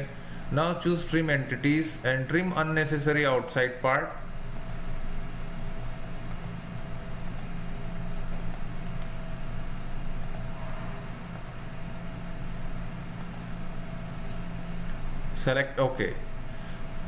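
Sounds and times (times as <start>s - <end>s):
low electrical hum: 0.0s - 17.0s
computer mouse clicks: 4.5s - 4.8s, 6.2s - 6.6s, 7.2s - 7.6s, 8.3s - 9.2s, 10.2s - 10.6s, 11.3s - 11.7s, 13.2s - 13.5s.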